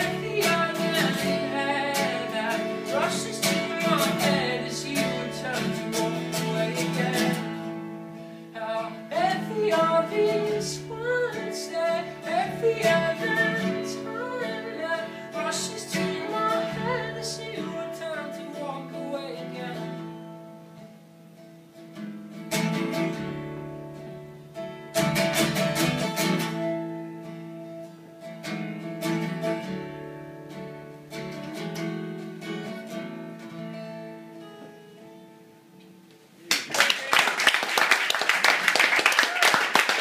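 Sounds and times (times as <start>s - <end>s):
acoustic guitar chords strummed: 0.0s - 36.0s.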